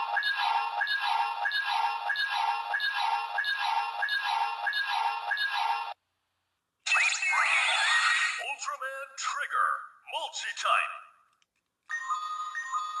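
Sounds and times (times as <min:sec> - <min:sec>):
repeating electronic beep: 0:00.0 - 0:06.0.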